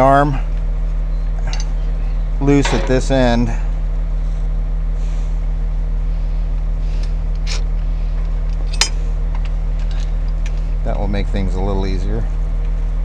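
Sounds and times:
engine humming at idle: 0:00.0 - 0:13.0.

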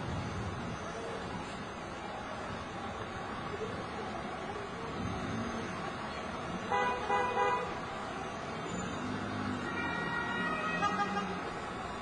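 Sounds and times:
emergency vehicle warning tones: 0:00.0 - 0:12.0
traffic noise: 0:00.0 - 0:12.0.

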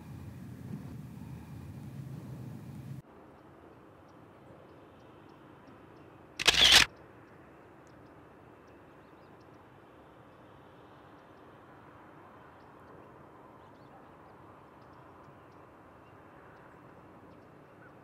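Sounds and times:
camera shutter clicks: 0:06.4 - 0:06.9.

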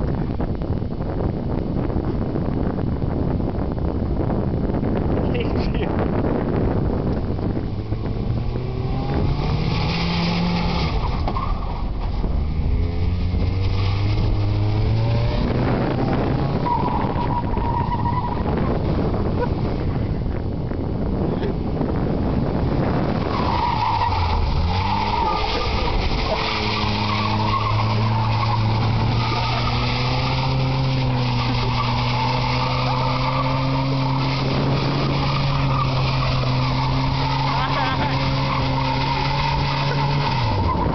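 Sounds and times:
car engine at high revs: 0:00.0 - 0:40.9
tyres skidding through gravel: 0:21.1 - 0:40.9.

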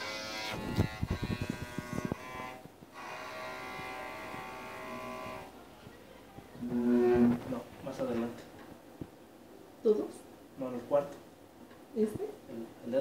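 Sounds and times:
bowed electric cello note: 0:06.6 - 0:07.4.

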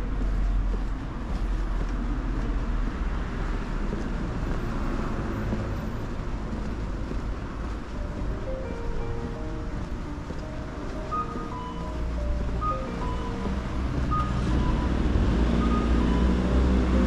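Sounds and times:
traffic rumble and tyre noise: 0:00.0 - 0:17.0.

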